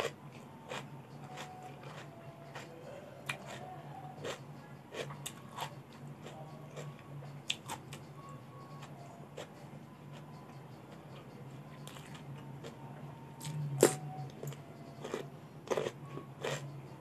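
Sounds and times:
chewing crisp vegetables: 0.0s - 17.0s.

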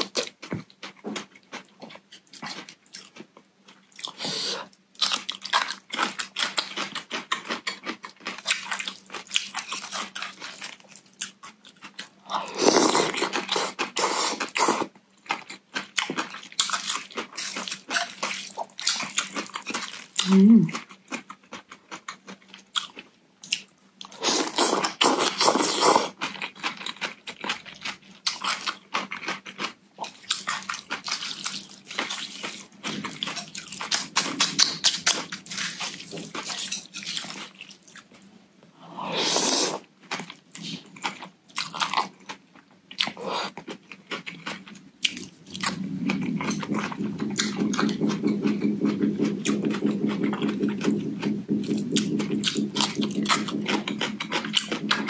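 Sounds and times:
wet crunching and chewing: 0.0s - 38.3s, 39.8s - 55.0s
slurping noodles: 12.4s - 14.9s, 39.0s - 39.9s
low fast-pulsing hum: 45.5s - 55.0s.

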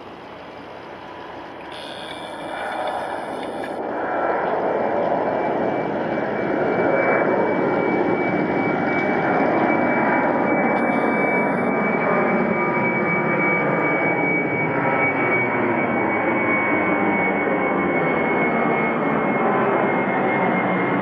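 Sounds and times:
jet engines roaring: 0.0s - 21.0s.

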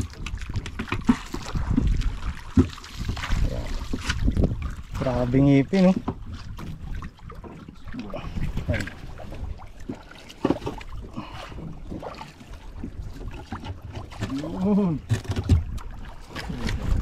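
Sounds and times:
wind buffeting microphone: 0.0s - 7.4s, 15.0s - 17.0s.

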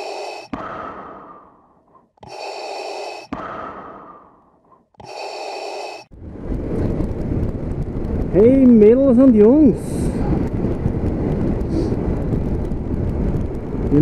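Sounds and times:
rasping whistling breaths: 0.0s - 6.1s
rush of air: 0.0s - 8.3s.

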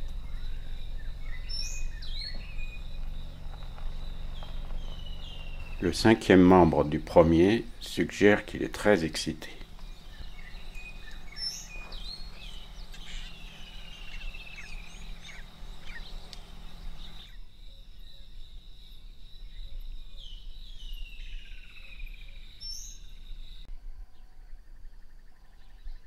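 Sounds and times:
low hum: 0.0s - 17.2s
wild birds calling and singing: 0.0s - 18.5s, 19.4s - 26.0s
high insect drone: 0.0s - 23.7s.

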